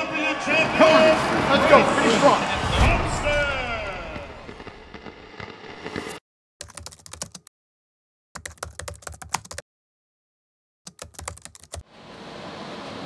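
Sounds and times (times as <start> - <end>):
keyboard typing clicks: 6.6 - 7.5, 8.4 - 9.6, 10.9 - 11.8.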